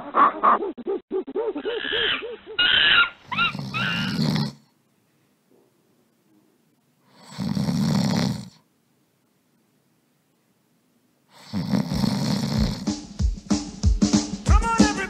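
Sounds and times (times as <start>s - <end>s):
person snoring: 3.3s - 4.7s, 7.1s - 8.6s, 11.3s - 13.0s.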